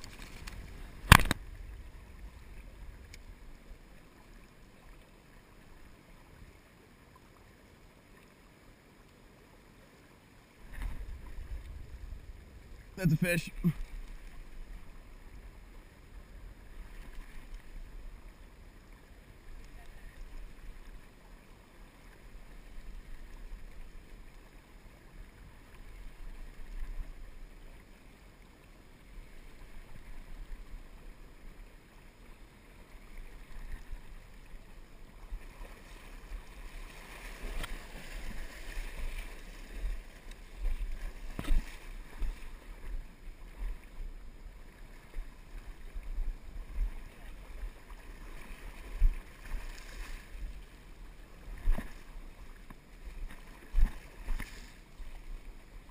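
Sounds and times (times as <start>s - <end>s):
muffled river water rushing: 0.0s - 55.9s.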